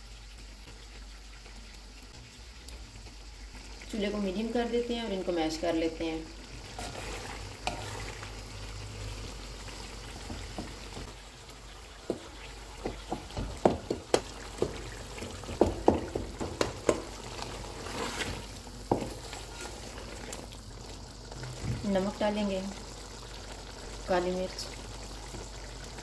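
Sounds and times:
meat sizzling in oil: 0.0 - 26.0
wooden spatula scraping metal pan: 6.7 - 8.3, 14.1 - 20.2.

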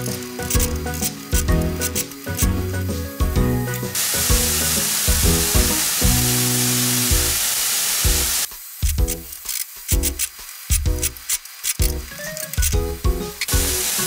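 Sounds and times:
background music: 0.0 - 7.4, 8.1 - 11.2, 11.8 - 14.0
meat sizzling in frying pan: 4.0 - 9.0, 13.5 - 14.0.

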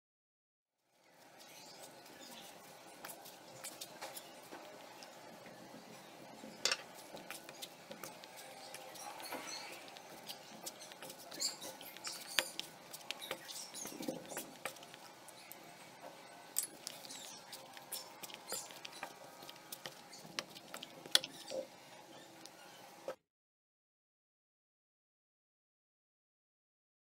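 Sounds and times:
dough kneading squishes: 0.8 - 23.2.

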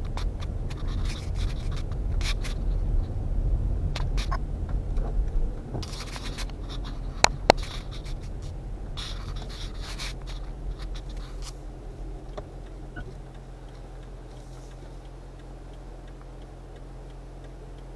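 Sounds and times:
engine and road hum: 0.0 - 17.9
tyre hiss on wet road: 14.3 - 15.0.

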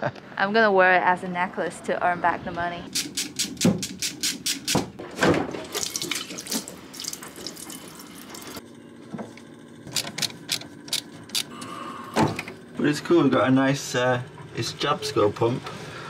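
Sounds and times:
water splashing into a metal pot: 5.6 - 8.6.

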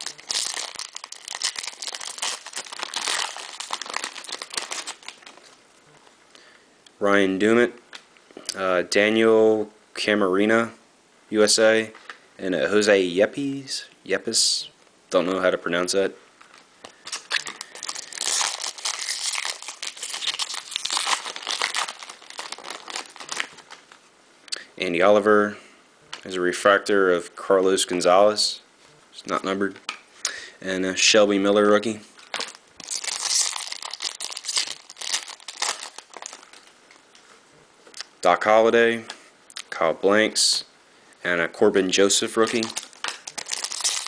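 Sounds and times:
foil wrapper crinkling and tearing: 0.0 - 5.6, 17.1 - 23.9, 32.2 - 37.0, 42.4 - 44.0.

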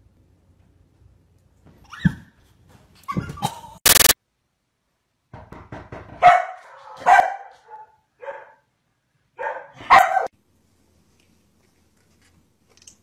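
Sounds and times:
dog yipping: 1.8 - 2.3, 6.2 - 8.6, 9.4 - 10.3
dog barking: 6.2 - 8.7, 9.4 - 10.3.

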